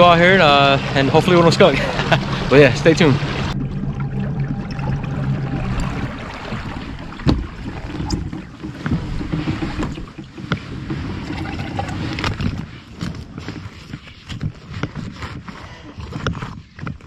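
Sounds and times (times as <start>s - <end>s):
water rumbling against hull: 0.0s - 17.0s
sharp knocks: 6.5s - 11.7s.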